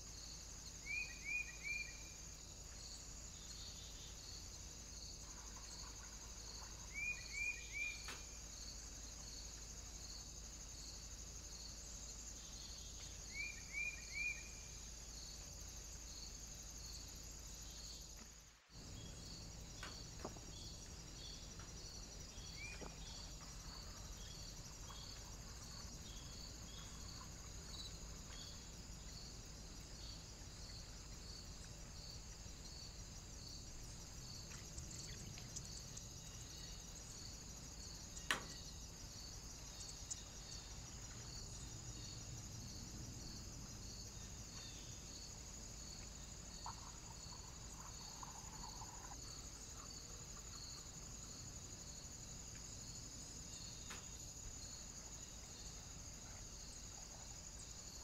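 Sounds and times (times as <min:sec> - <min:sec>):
crickets chirring: 0:00.0 - 0:58.0
small bird chirping: 0:05.5 - 0:08.3, 0:18.8 - 0:29.3.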